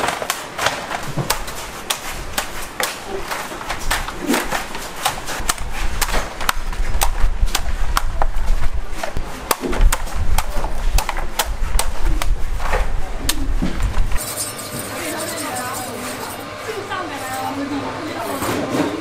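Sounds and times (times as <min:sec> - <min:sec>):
blade chopping coconuts: 0:00.0 - 0:08.3, 0:09.0 - 0:13.4.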